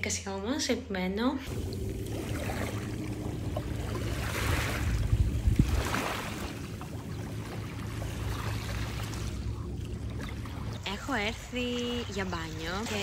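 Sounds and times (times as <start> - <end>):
low rumble: 1.4 - 13.0
waves washing over pebbles: 1.5 - 6.8.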